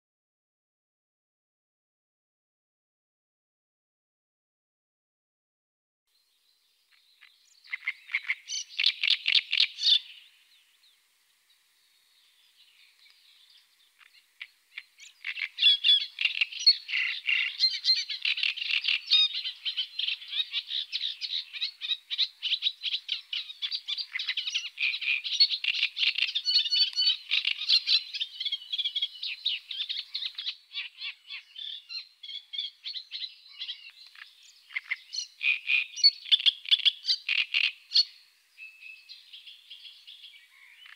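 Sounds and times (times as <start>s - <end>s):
warbler singing: 6.2s - 40.9s.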